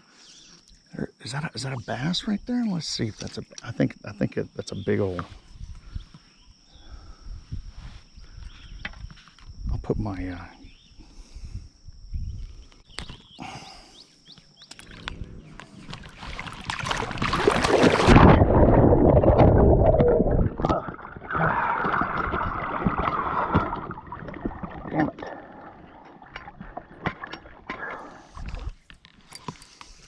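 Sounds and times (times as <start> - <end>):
water sloshing and splashing: 14.7 - 29.5.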